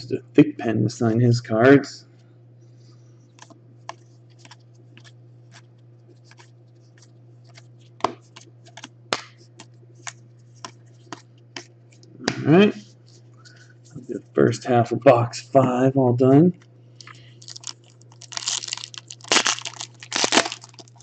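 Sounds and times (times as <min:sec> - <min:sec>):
steady low hum: 0:00.0 - 0:21.0
trading cards clicking and snapping: 0:07.5 - 0:11.7.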